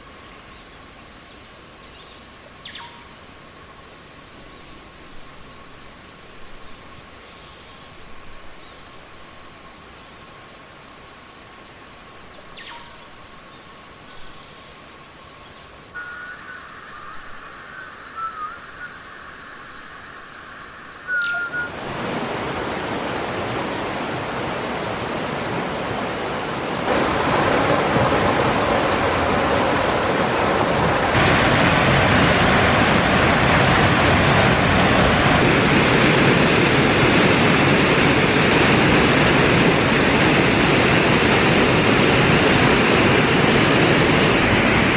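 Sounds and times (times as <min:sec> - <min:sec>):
rushing stream and waterfall: 0:00.0 - 0:44.9
bird chirps and whistles: 0:15.9 - 0:19.1, 0:20.8 - 0:21.7.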